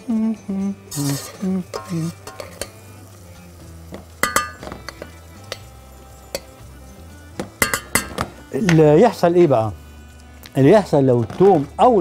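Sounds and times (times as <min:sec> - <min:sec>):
faint sizzle in oil: 0:00.0 - 0:12.0
spoon clinking and scraping saucepan: 0:00.9 - 0:02.9, 0:03.9 - 0:06.7, 0:07.6 - 0:08.3.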